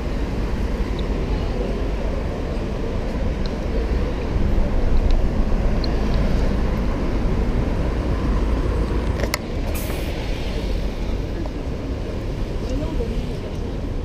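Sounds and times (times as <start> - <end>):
passing cars rumble: 0.0 - 14.0
brief hiss: 9.7 - 10.3.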